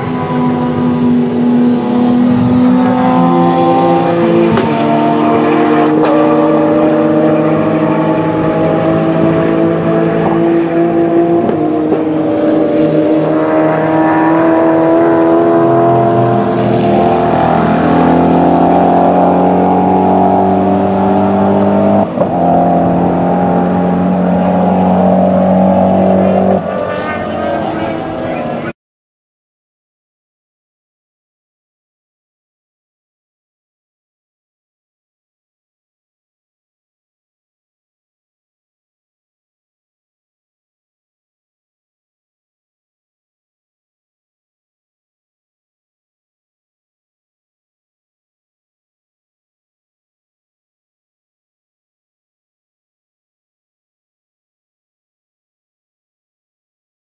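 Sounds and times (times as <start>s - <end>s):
race cars at full throttle: 0.0s - 28.8s.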